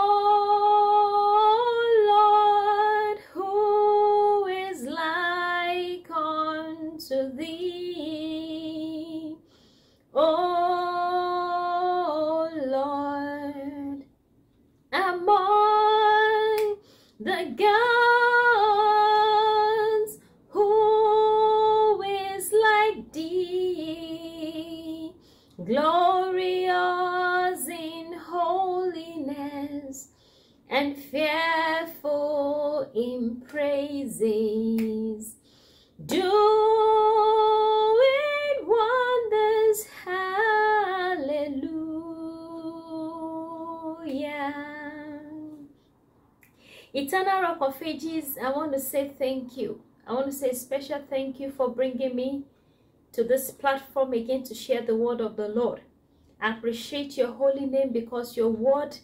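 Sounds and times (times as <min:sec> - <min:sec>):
woman singing unaccompanied: 0:00.0 - 0:09.4, 0:10.2 - 0:14.1, 0:14.9 - 0:30.1, 0:30.7 - 0:35.4, 0:36.0 - 0:45.7.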